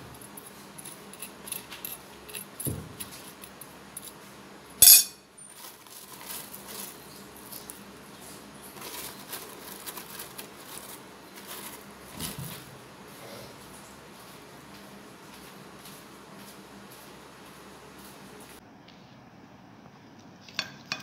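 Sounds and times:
metal spoon clinking on glass plate: 4.8s - 5.2s.

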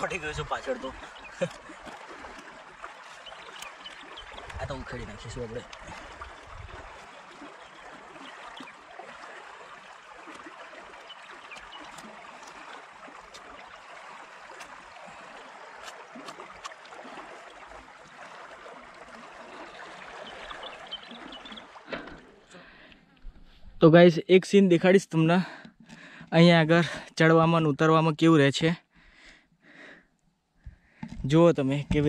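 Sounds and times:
shallow water trickling in canal: 0.0s - 23.8s.

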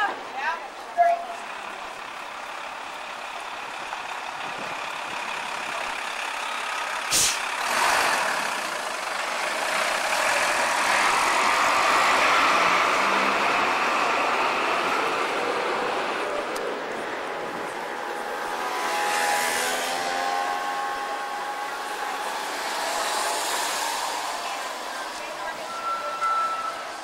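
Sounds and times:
truck driving past: 1.3s - 27.0s
sharp burst of noise: 7.1s - 8.4s.

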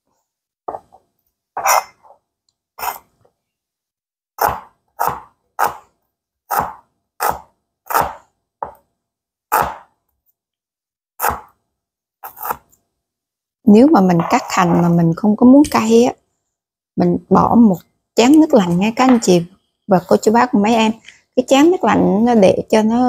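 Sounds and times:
cleaver chopping onions: 4.4s - 5.9s, 6.5s - 8.8s, 9.5s - 9.9s, 11.2s - 11.6s, 12.2s - 12.7s.

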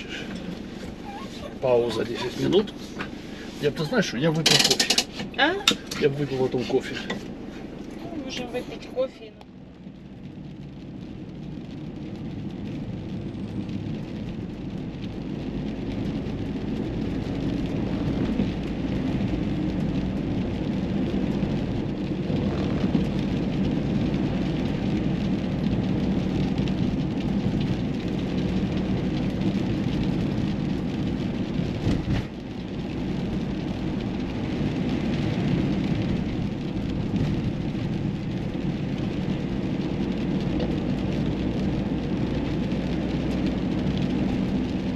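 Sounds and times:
tyre and road rumble: 0.0s - 44.9s
wind noise: 10.2s - 44.9s.

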